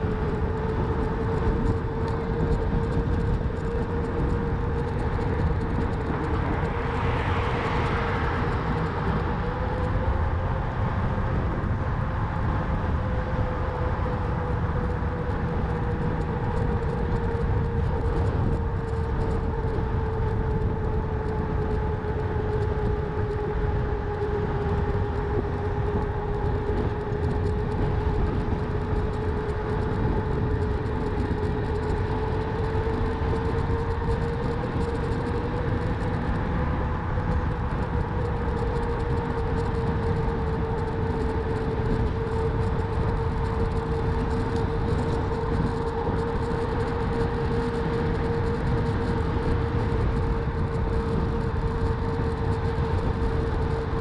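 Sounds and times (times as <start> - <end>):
wind and tyres rumbling: 0.0 - 54.0
electric bike motor whining: 11.2 - 53.9.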